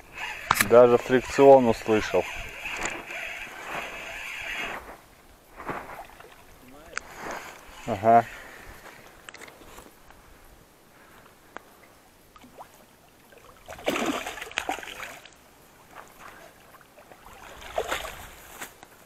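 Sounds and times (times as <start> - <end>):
fish splashing in water: 12.3 - 15.4, 16.1 - 18.7.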